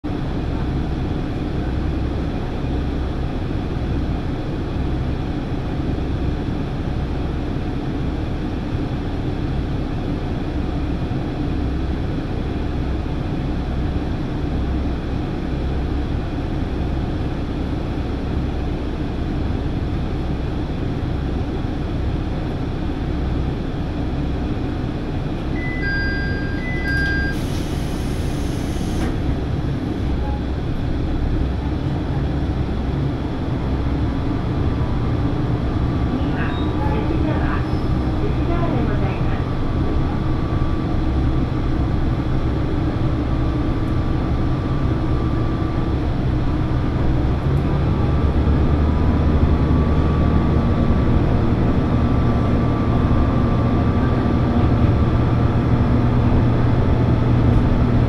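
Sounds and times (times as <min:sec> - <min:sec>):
diesel engine idling: 0:00.1 - 0:58.0
short chime beeps: 0:25.6 - 0:27.4
air hiss: 0:27.3 - 0:29.2.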